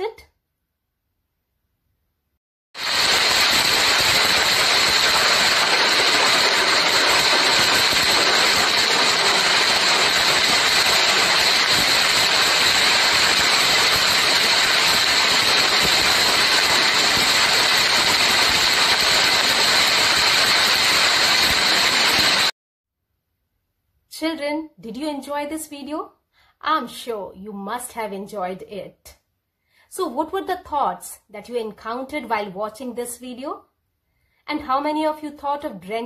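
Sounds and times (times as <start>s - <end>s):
heavy rain falling: 2.8s - 22.5s.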